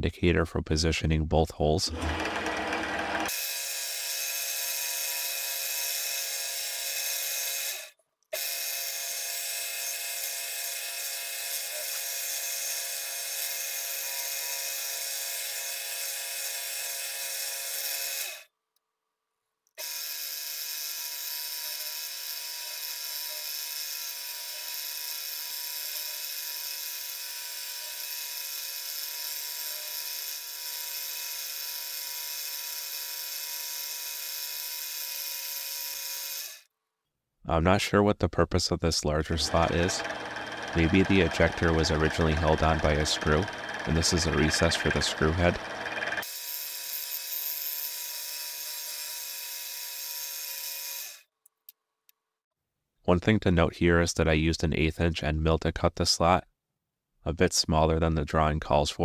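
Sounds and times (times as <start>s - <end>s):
milling machine spindle whine: 2.0s - 3.3s, 39.4s - 46.3s.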